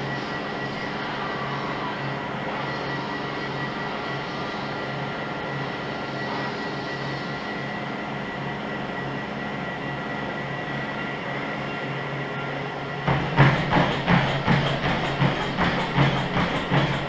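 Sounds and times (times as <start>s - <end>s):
treadmill motor hum and whine: 0.0s - 17.0s
treadmill belt noise: 13.0s - 17.0s.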